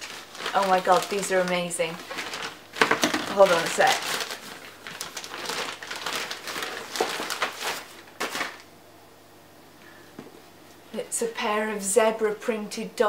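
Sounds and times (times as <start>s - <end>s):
plastic bag crinkling: 0.0s - 8.7s.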